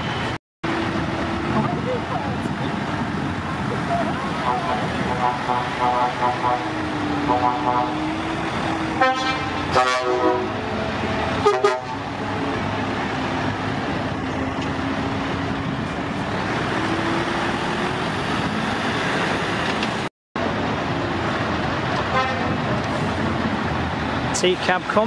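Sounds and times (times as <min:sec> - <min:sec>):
truck engine running: 0:00.0 - 0:25.0
truck air horn toots: 0:04.4 - 0:08.2, 0:08.9 - 0:10.6, 0:11.3 - 0:12.0, 0:22.1 - 0:22.6.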